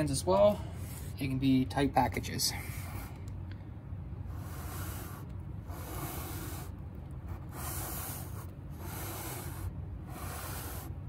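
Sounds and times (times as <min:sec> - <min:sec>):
low steady hum: 0:00.0 - 0:11.0
cardboard boxes rubbing: 0:07.4 - 0:10.9.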